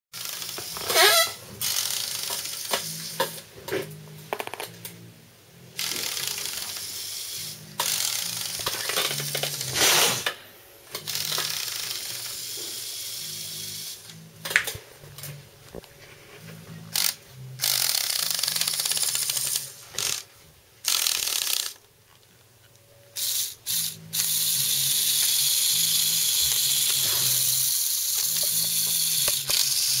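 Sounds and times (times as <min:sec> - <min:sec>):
toy electric motor whirring: 0:00.2 - 0:03.4, 0:05.8 - 0:14.2, 0:16.8 - 0:21.9, 0:23.2 - 0:30.0.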